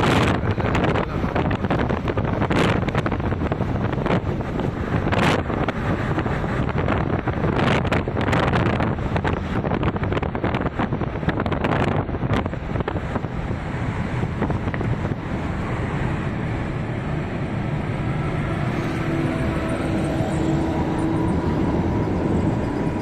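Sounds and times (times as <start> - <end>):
vehicle road noise: 0.0 - 23.0
wind buffeting microphone: 0.0 - 23.0.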